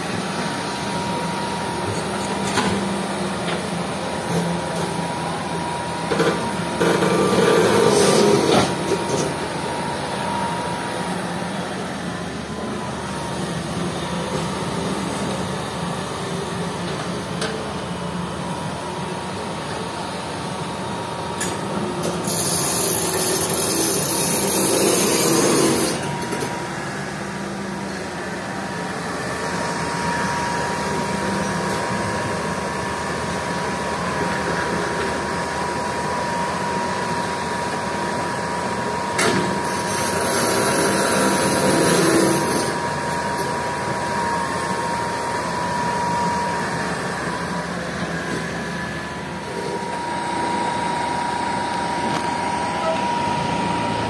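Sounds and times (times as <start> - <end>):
hydraulic whine: 0.0 - 15.4, 21.4 - 32.7, 39.1 - 54.0
excavator diesel engine running: 0.0 - 54.0.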